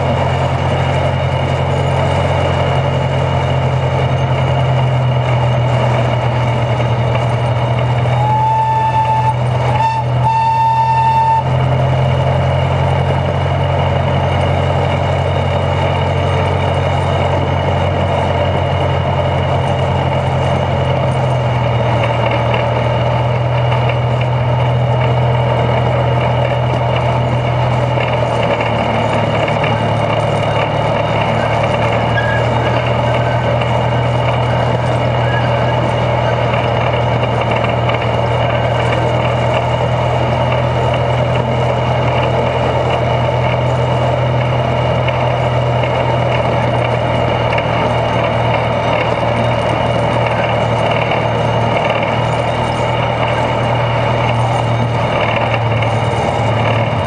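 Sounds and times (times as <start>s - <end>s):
locomotive engine droning: 0.0s - 57.0s
wheels rolling over rails: 0.0s - 57.0s
locomotive horn toots: 7.2s - 12.3s, 30.4s - 37.2s.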